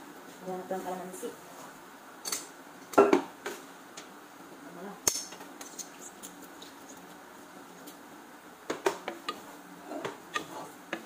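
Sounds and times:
wooden spoon stirring in a pot: 5.6 - 8.0, 8.7 - 11.0
spoon knocking against pot: 10.0 - 11.0.

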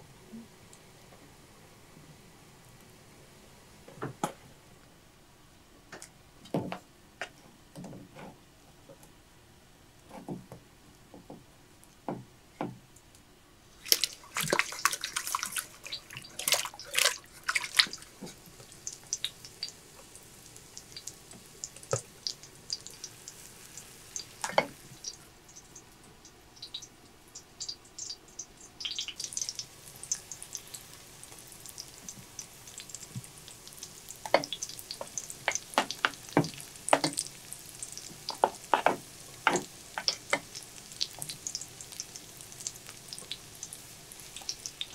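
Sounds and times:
food sizzling in hot oil: 13.7 - 25.2, 28.8 - 44.9
water splashing: 13.8 - 18.2.

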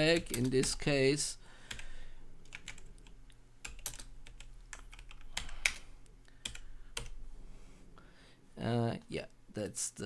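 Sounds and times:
computer keyboard typing: 0.0 - 1.0, 1.6 - 5.8, 6.4 - 7.2.

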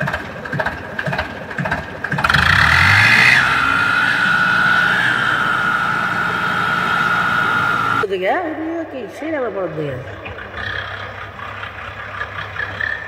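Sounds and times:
hydraulic pump whine: 0.0 - 8.1
tractor diesel engine revving: 0.0 - 13.0.

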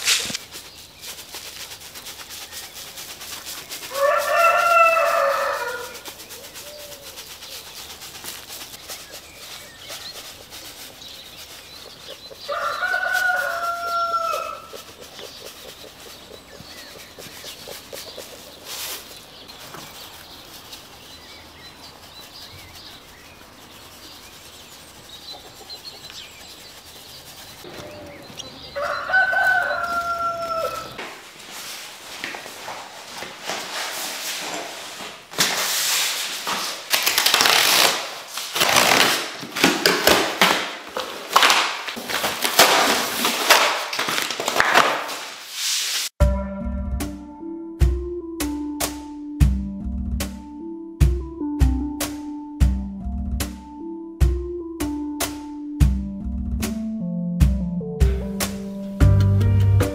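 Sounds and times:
rooster crowing: 3.9 - 6.1, 12.5 - 14.8, 27.8 - 31.0.

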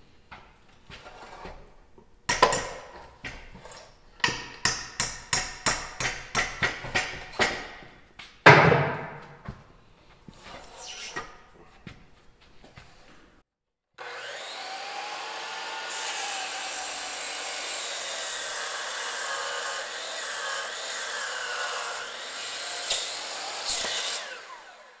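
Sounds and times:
wooden knocks: 6.1 - 9.4
heavy wooden clunk: 8.5 - 9.4.

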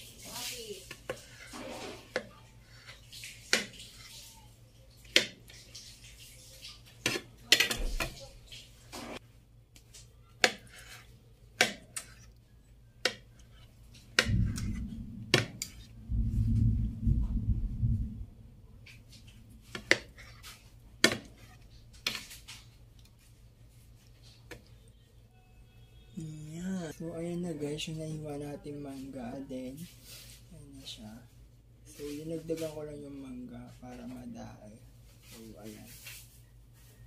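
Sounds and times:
low rumble: 14.2 - 18.9.

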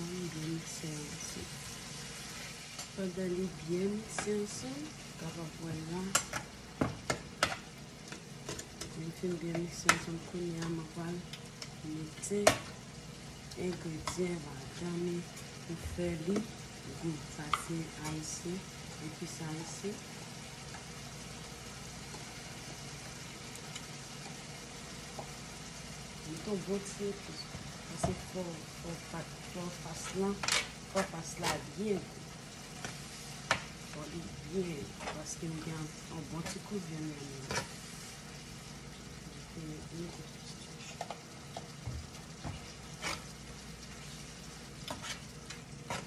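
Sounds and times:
meat sizzling in a pan: 0.0 - 46.0
spoon and spatula scraping pan: 29.9 - 31.7, 37.4 - 37.9, 42.5 - 43.4, 44.8 - 46.0.

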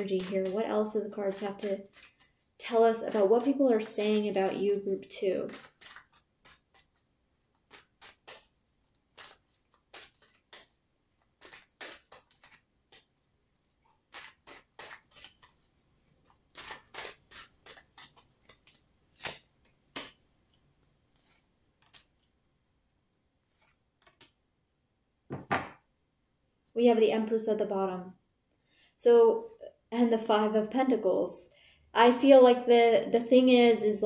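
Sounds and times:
cards being shuffled: 0.0 - 20.2, 20.8 - 22.3, 23.4 - 24.4
card snaps: 18.0 - 20.2.

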